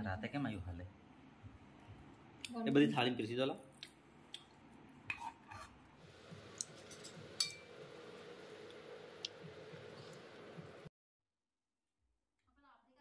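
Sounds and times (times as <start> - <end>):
faint steady hum: 5.8 - 10.9
spoon clinking on steel bowls: 6.6 - 7.8.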